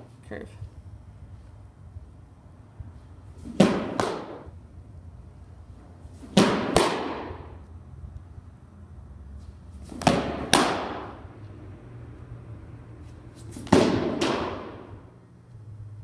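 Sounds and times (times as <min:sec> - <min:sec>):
ball smacking into catcher's mitt: 0:03.4 - 0:04.5, 0:06.3 - 0:07.5, 0:09.9 - 0:11.2, 0:13.5 - 0:14.9.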